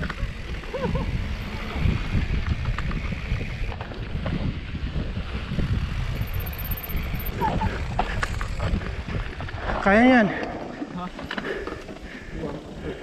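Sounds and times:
wind on microphone: 0.0 - 9.9
bike tyres rumbling on dirt: 0.0 - 13.0.

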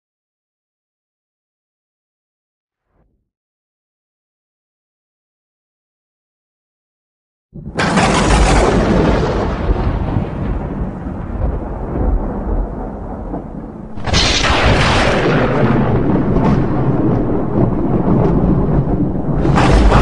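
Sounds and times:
thunder clap rumbling: 7.6 - 20.0.

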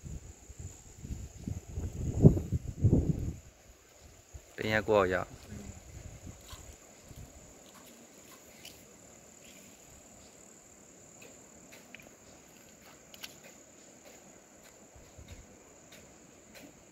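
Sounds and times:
high-pitched insect chorus: 0.0 - 16.9
soft hiss: 0.0 - 16.9
faint ticks: 6.4 - 10.4, 11.2 - 16.8.

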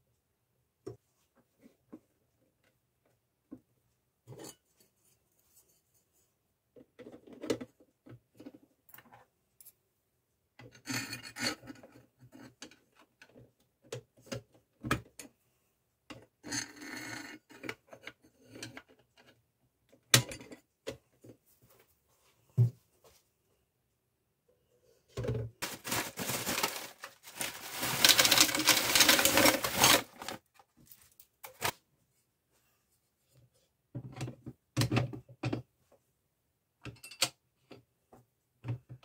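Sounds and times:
plastic scraping and rubbing: 25.6 - 31.8.

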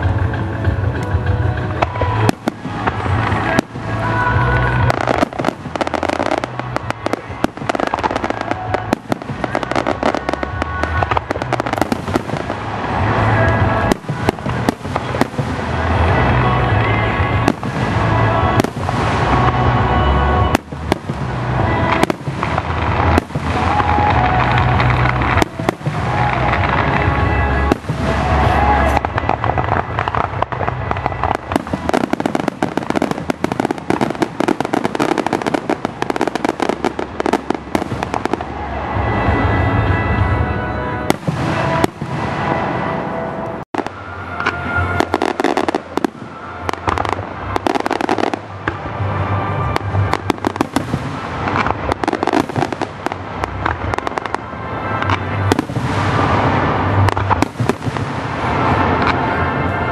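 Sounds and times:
dense firework crackling: 0.0 - 59.9.

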